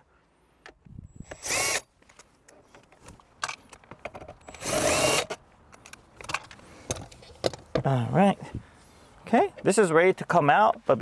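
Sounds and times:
cordless drill whining: 1.1s - 1.8s, 4.4s - 5.4s.

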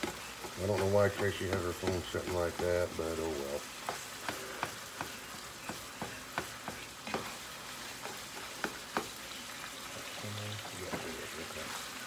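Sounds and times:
utensil scraping a pan: 0.0s - 9.2s
meat sizzling in a frying pan: 0.0s - 12.0s.

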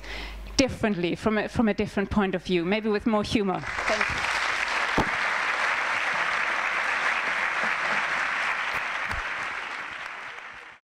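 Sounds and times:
audience applauding: 3.6s - 10.8s.

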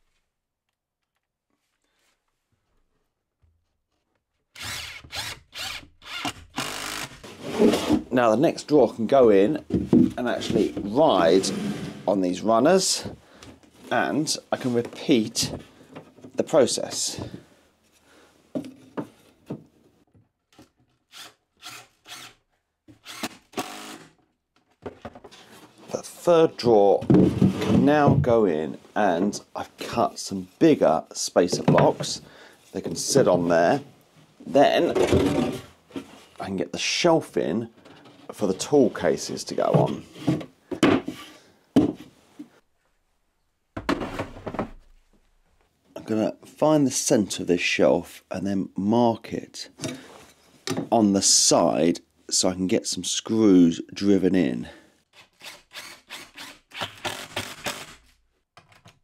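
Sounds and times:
drawer sliding on wooden runners: 7.3s - 8.1s, 10.5s - 12.2s
plastic case scraping and knocking: 26.9s - 28.3s, 34.8s - 36.1s
wooden shelf thunk: 27.0s - 28.3s, 39.7s - 41.2s, 43.8s - 44.8s.

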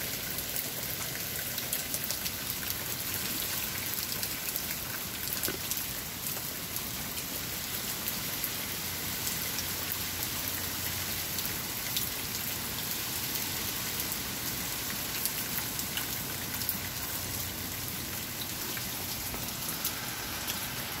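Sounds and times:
raindrops ticking on surfaces: 0.0s - 21.0s
heavy rain hissing: 7.9s - 21.0s.

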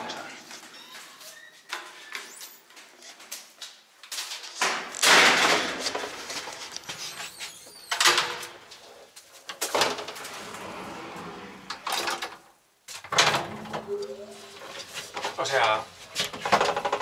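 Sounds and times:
elevator door sliding: 9.8s - 12.3s.

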